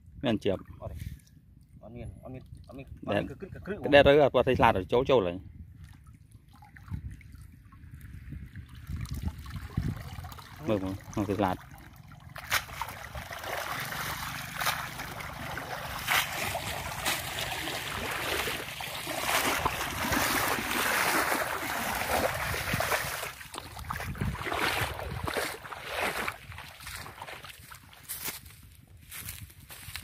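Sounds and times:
net swished through water: 12.2 - 28.0
footsteps through dry straw: 26.9 - 30.0.

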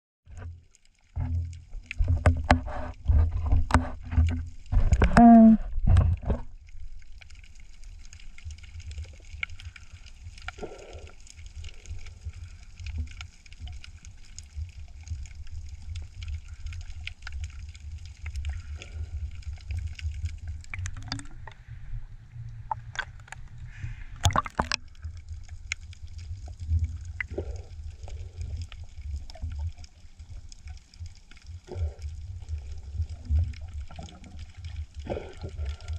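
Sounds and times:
steady low rumble with crackling: 0.3 - 35.9
muffled underwater knocks: 2.0 - 6.5
splashy water noise: 22.7 - 25.6.

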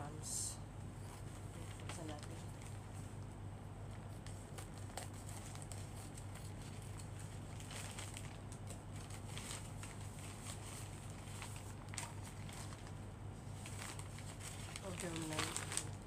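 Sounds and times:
plastic pouch crinkling: 4.0 - 16.0.

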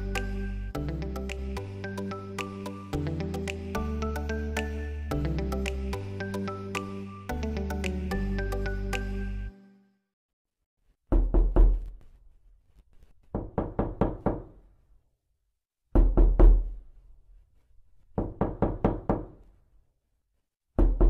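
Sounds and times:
background music: 0.0 - 10.0
knocking at a door: 13.3 - 14.5, 18.2 - 19.4.

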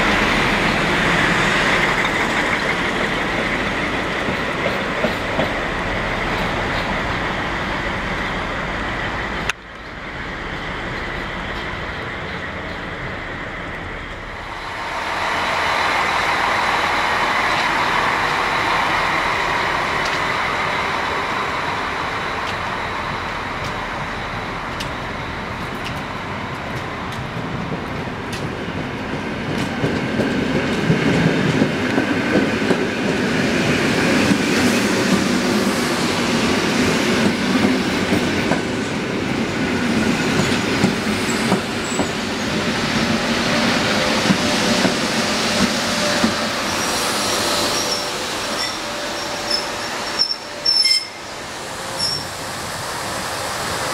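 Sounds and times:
train wheels clacking over rail joints: 1.7 - 5.6
high wheel squeal: 46.0 - 52.4.

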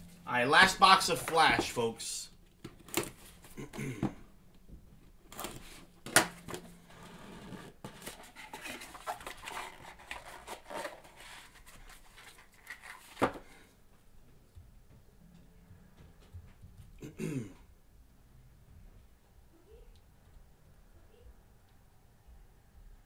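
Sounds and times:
plastic wrap tearing and crinkling: 8.0 - 13.2.

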